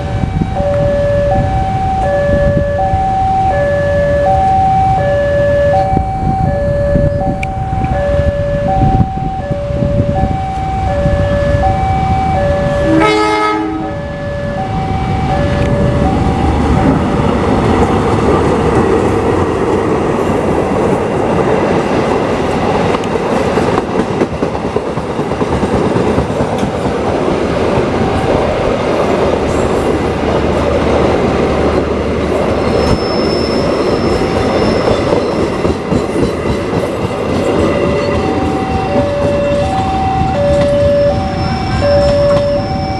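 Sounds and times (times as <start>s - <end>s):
train passing rumble: 0.0s - 42.9s
high wheel squeal: 32.4s - 42.9s.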